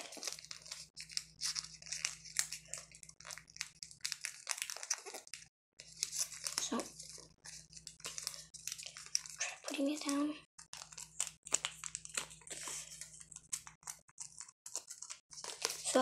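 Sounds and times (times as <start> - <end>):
paper rustling and crinkling: 0.0 - 16.0.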